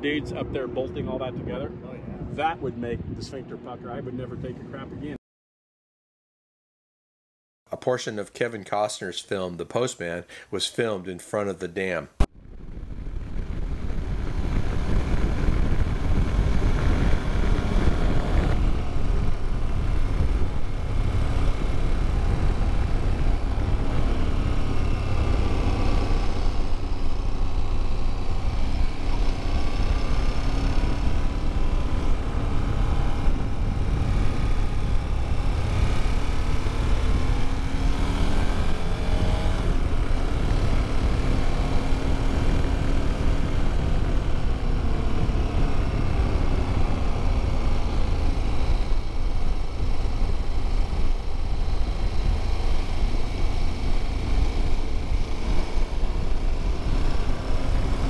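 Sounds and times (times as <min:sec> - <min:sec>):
wind buffeting: 0:00.0 - 0:04.9, 0:12.4 - 0:58.0
motorcycle engine: 0:12.2 - 0:58.0.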